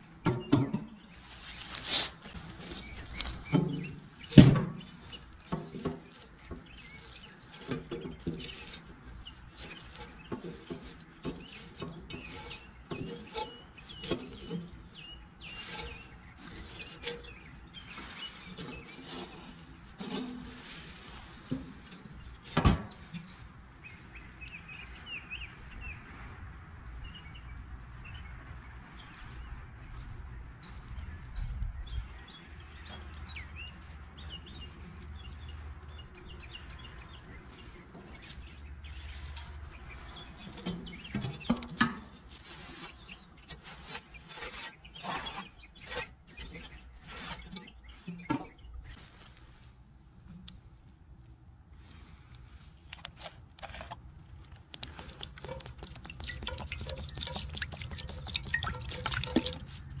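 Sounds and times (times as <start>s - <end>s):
birds chirping: 0.0s - 26.2s, 27.0s - 49.6s, 53.9s - 60.0s
rag wiping cast iron pot: 1.8s - 22.3s, 54.9s - 60.0s
wind rumble on microphone: 27.1s - 32.8s.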